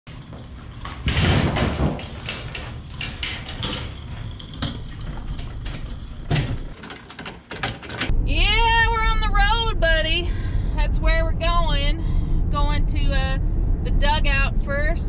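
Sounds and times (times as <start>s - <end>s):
metal trailer clanking and rattling: 0.1s - 8.2s.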